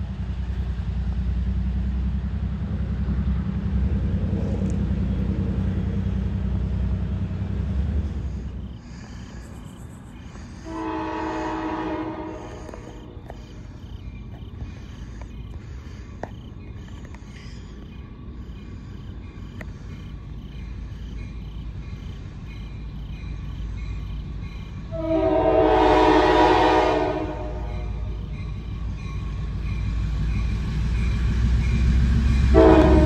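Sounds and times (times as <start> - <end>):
diesel locomotive rumble: 0.0 - 33.0
locomotive air horn blast: 10.6 - 13.3, 24.9 - 28.1, 32.5 - 33.0.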